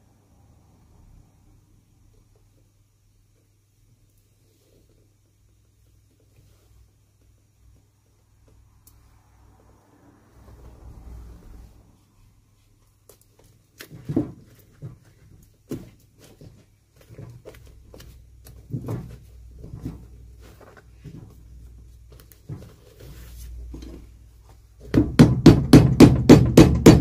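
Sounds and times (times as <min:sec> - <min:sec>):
handling of shoe: 0:12.2 - 0:25.2
hammer beating shoe sole: 0:24.9 - 0:27.0
scattered knocks: 0:24.9 - 0:27.0.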